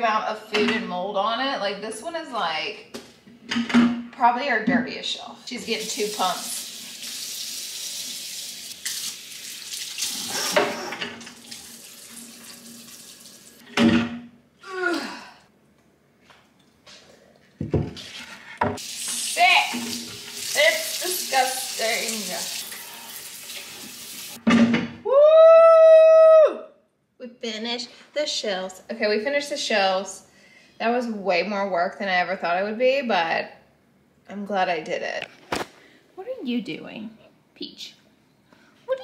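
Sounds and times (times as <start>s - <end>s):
faucet water running into sink: 5.6s - 13.6s, 18.8s - 24.4s.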